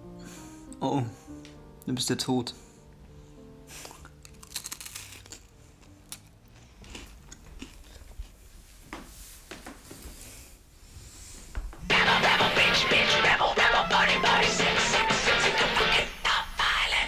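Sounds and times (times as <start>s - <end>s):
cookie crunching: 3.8s - 8.4s.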